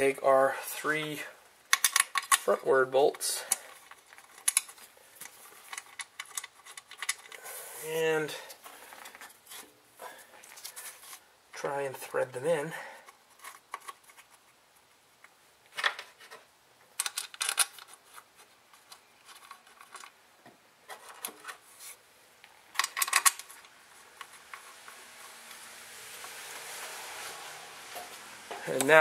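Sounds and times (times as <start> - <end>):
soft hiss: 0.0 - 17.0, 17.7 - 29.0
hands scraping metal bolts: 3.5 - 7.5.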